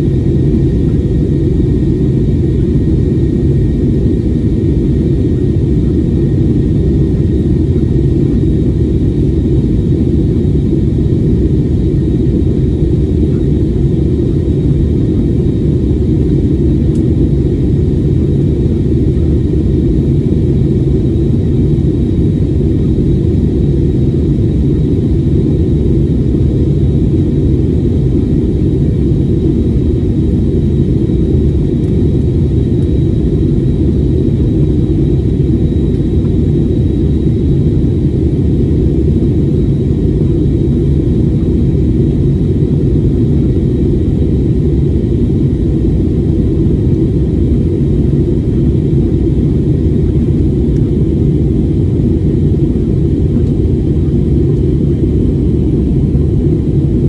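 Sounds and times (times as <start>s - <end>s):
faint high whine: 0.0s - 57.0s
jet engine rumble: 0.0s - 57.0s.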